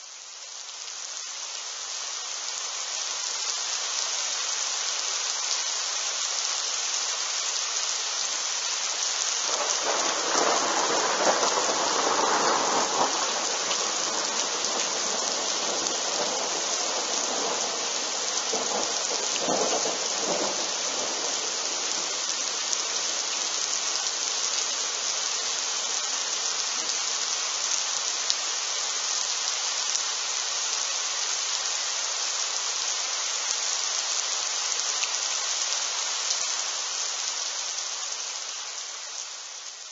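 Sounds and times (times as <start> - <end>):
steady rain falling: 0.0 - 39.9
thunder rumbling: 9.5 - 21.4.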